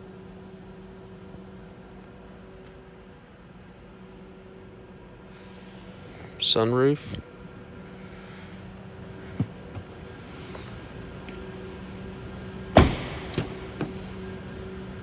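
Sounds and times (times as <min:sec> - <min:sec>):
steady low hum: 0:00.0 - 0:15.0
car door thump: 0:12.7 - 0:14.0.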